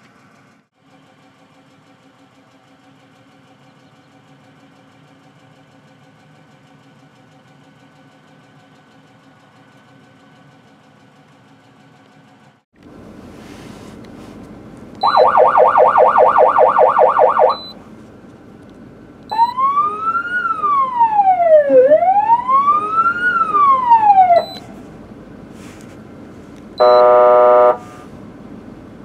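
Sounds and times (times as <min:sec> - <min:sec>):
siren wail: 0:15.0 - 0:17.7, 0:19.3 - 0:24.6
siren yelp warble: 0:15.0 - 0:17.7, 0:19.3 - 0:24.6
short high beep: 0:15.0 - 0:17.8, 0:26.8 - 0:27.8.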